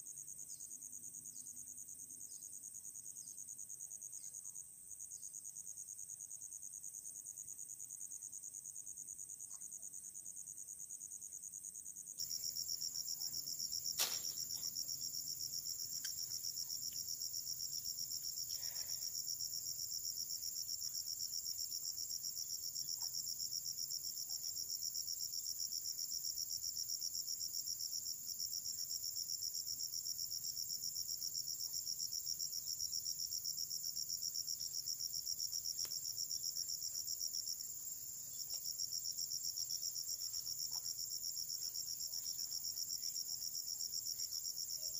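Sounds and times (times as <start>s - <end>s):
insects trilling: 0.0s - 44.9s.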